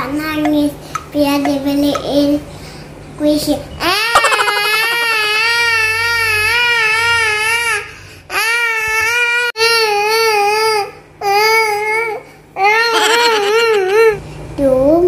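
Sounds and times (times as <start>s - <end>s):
girl fake-crying wails: 4.0s - 5.8s, 12.8s - 13.9s.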